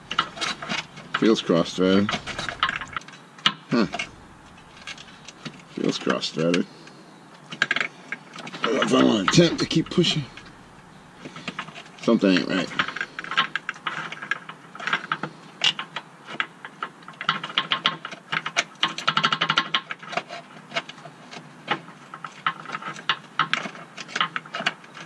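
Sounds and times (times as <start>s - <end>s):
rapid metallic clicking: 0.0s - 3.0s, 3.8s - 5.6s, 8.8s - 11.6s.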